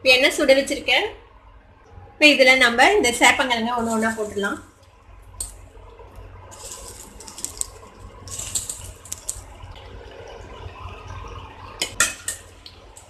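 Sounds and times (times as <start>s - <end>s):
food deep-frying in hot oil: 3.1s - 13.0s.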